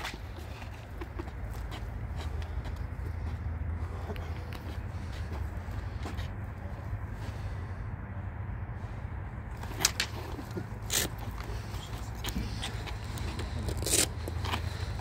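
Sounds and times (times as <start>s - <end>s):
practice swords clacking: 9.5s - 15.0s.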